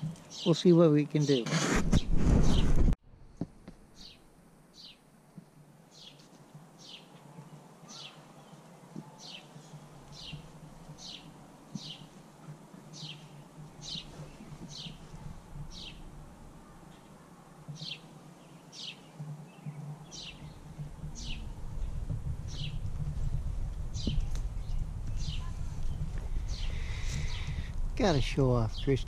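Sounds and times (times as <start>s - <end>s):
bird calling: 7.8s - 12.2s, 12.9s - 17.1s, 23.9s - 27.7s.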